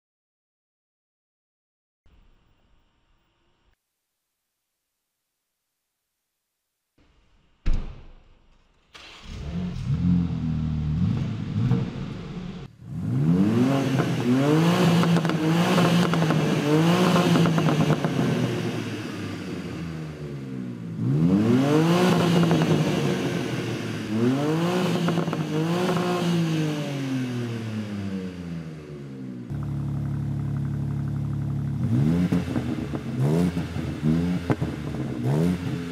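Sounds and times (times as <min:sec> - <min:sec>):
car engine revving: 0:09.0 - 0:35.9.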